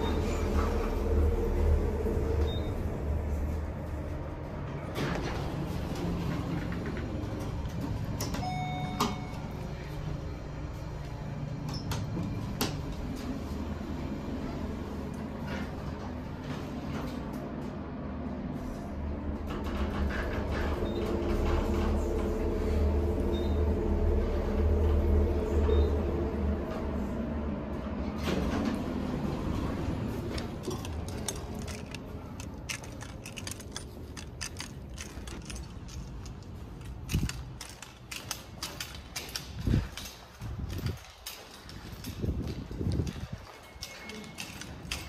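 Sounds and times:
elevator car humming: 0.0 - 45.0
footsteps on tiled floor: 30.2 - 45.0.

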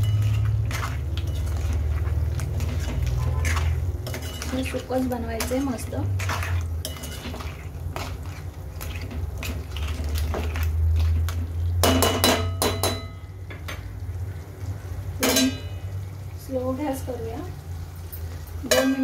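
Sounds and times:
steel spoon scraping a pan: 0.0 - 11.4.

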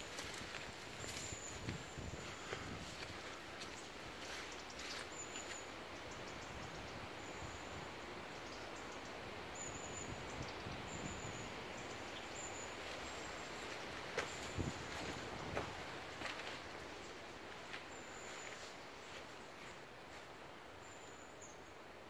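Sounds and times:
faint rustling footsteps: 0.0 - 5.8, 12.6 - 20.6
outdoor background noise: 0.0 - 22.0.

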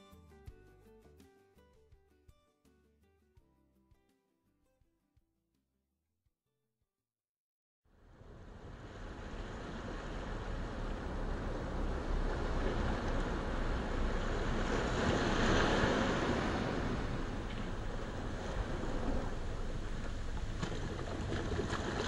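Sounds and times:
waves breaking: 8.1 - 22.0.

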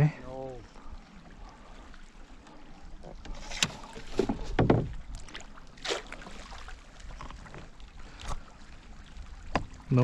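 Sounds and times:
fish splashing water: 5.2 - 7.0.

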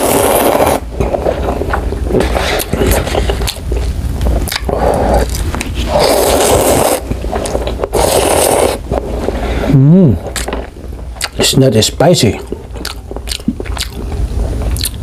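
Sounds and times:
slurping noodles: 0.0 - 11.4
chewing: 0.5 - 9.4, 10.2 - 11.4, 12.4 - 15.0.

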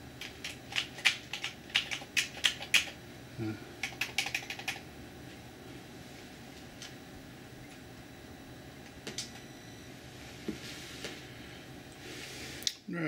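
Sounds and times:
keyboard keys clicking: 3.8 - 4.8.

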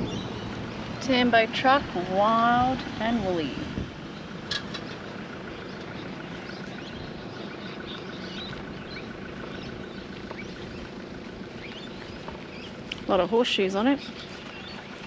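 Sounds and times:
low mechanical hum: 0.0 - 15.0
high bird chirps: 5.5 - 13.2.

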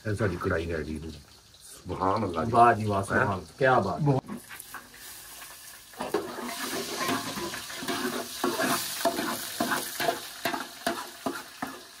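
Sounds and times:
onions sizzling in hot oil: 0.0 - 12.0
metal spoon scraping a pot: 6.0 - 11.8.

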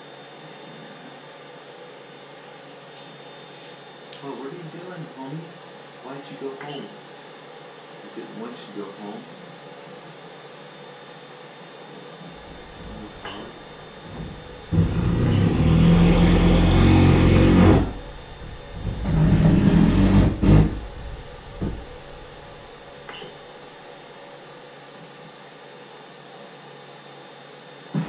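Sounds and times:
stepper motor whine: 12.1 - 23.4.

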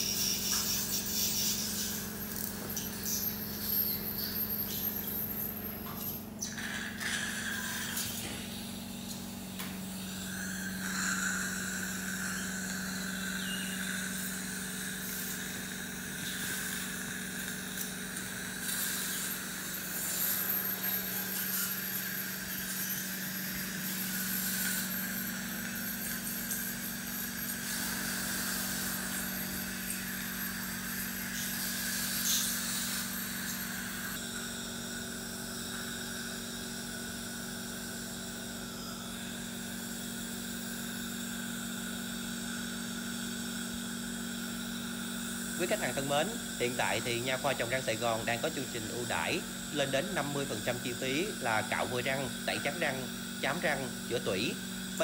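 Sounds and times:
high-pitched dental equipment tone: 0.0 - 55.0.

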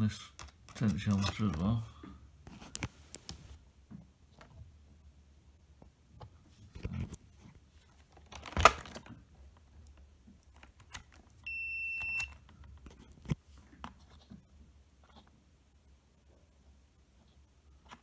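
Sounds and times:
multimeter high beep: 11.5 - 12.4.

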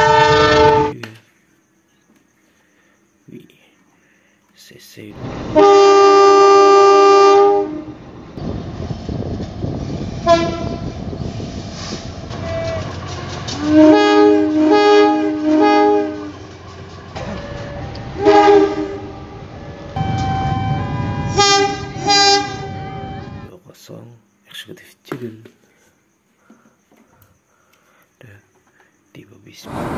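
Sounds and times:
locomotive air horn blasts: 0.0 - 1.0, 5.6 - 8.0, 10.2 - 10.9, 13.5 - 16.4, 18.1 - 19.2, 20.0 - 23.5
train rumbling on rails: 5.2 - 23.5, 29.6 - 29.9.

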